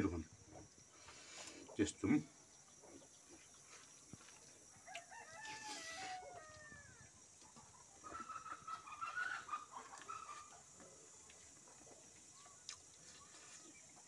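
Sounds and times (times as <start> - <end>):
rooster crowing: 4.8 - 7.1
chickens clucking: 6.0 - 14.0.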